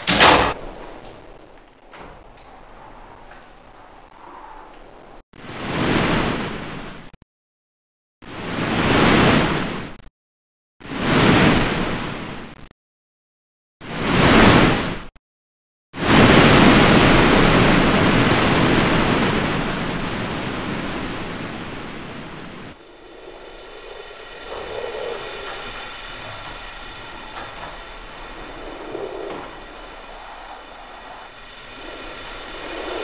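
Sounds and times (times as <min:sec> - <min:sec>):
rushing noise: 0:00.0 - 0:05.2, 0:16.0 - 0:33.0
steady drone with faint tones: 0:00.2 - 0:05.2, 0:16.4 - 0:33.0.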